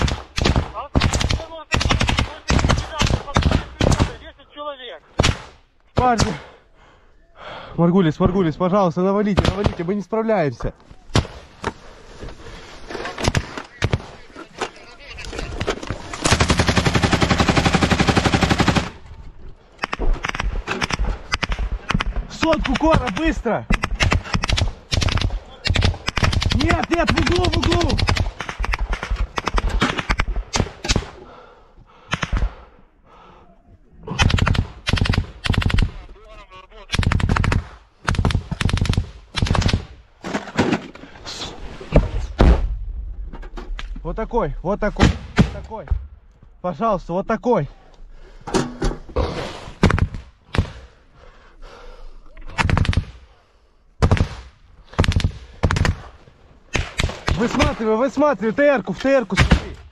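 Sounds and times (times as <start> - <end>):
automatic gunfire: 19.8 - 31.1, 34.2 - 36.0, 36.9 - 39.9.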